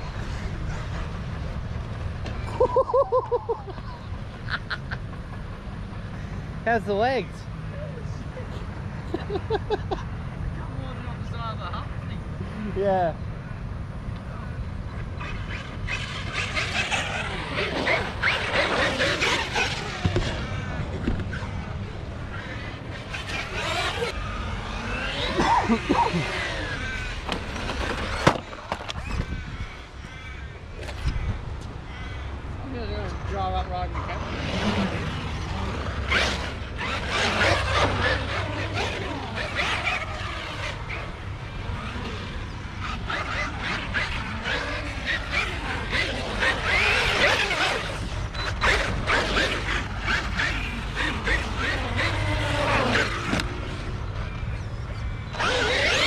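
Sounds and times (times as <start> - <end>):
electric motor whining: 15.2 - 29.4, 34.2 - 56.0
wind on microphone: 28.9 - 33.0.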